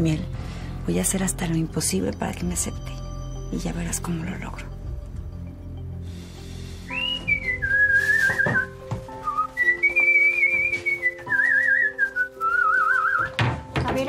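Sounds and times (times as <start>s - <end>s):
background music chords: 0.0s - 14.0s
whistled tune: 6.8s - 13.6s.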